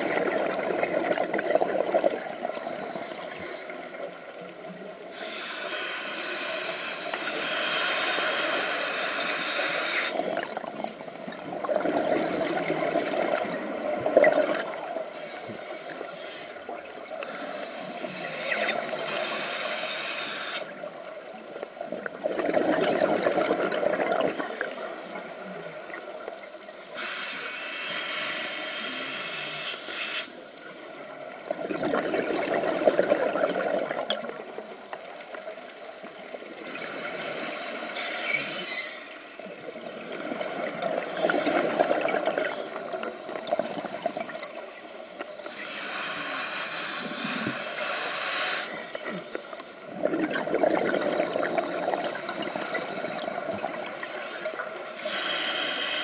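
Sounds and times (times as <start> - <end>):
underwater bubbling: 0.0 - 56.0
regulator air hiss: 5.1 - 10.2, 17.2 - 21.1, 26.8 - 31.0, 36.6 - 39.4, 44.7 - 49.8, 54.0 - 56.0.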